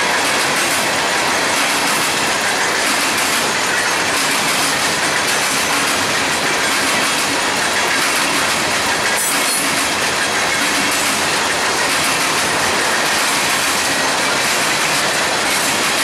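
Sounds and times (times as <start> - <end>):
train wheels rolling on rails: 0.0 - 16.0.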